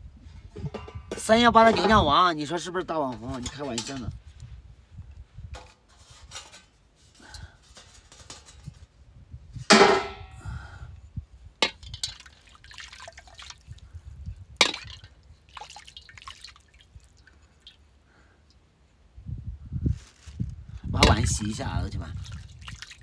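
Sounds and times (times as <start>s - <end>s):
water dripping and splashing: 11.6s - 17.9s, 21.0s - 23.0s.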